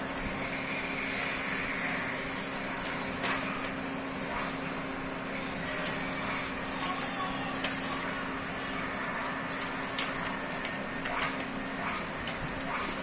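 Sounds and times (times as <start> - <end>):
paper pages rustling: 2.3 - 3.8, 5.5 - 8.4, 9.5 - 13.0.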